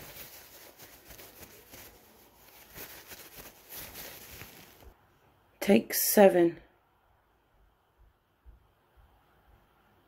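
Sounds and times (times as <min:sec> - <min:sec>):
paper tissue rustling: 0:00.0 - 0:05.0.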